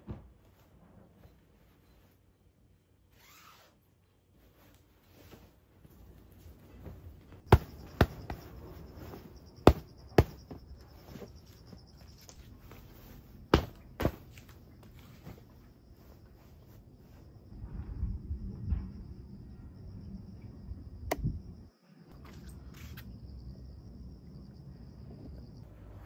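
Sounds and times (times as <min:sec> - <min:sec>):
faint high insect buzz: 0:03.1 - 0:03.8, 0:18.6 - 0:25.7
sharp thumps: 0:07.5 - 0:10.8.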